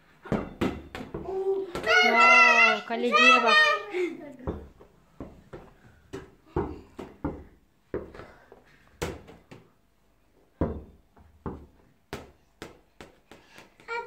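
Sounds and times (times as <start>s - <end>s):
ball bouncing on tiled floor: 0.2s - 2.2s, 4.4s - 9.7s, 10.4s - 14.0s.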